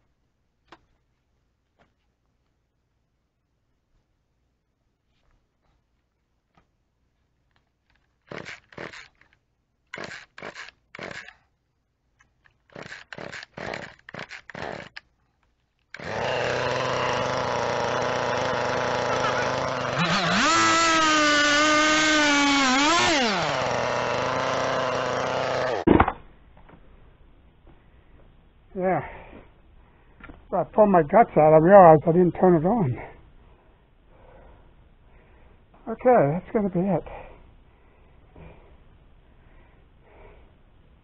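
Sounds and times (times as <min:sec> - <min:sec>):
chainsaw starter cord rips: 0:07.8 - 0:11.5, 0:12.2 - 0:15.1, 0:15.9 - 0:26.0
chainsaw engine running and revving: 0:16.0 - 0:25.9.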